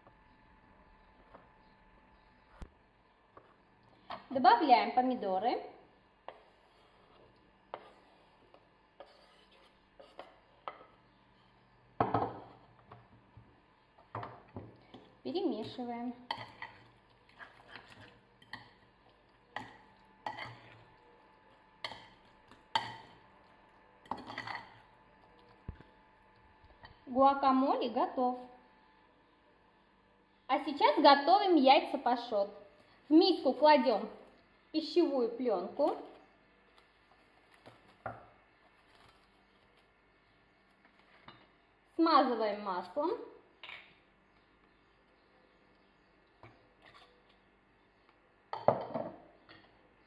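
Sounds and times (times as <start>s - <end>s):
spoon scraping in a bowl: 9.0s - 10.8s, 14.9s - 18.8s, 19.5s - 21.0s, 24.0s - 24.8s, 46.5s - 47.4s.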